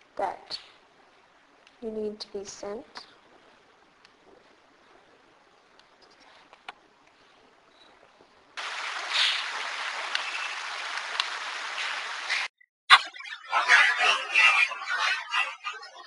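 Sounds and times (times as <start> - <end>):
loud recorder hiss: 0.0 - 12.5.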